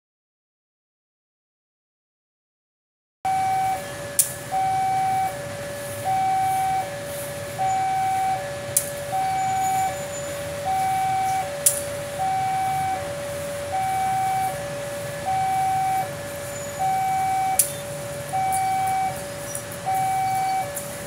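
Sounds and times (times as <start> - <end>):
two-tone warning alarm: 3.3 - 21.0
sharp clicks: 11.6 - 11.9, 17.6 - 17.8.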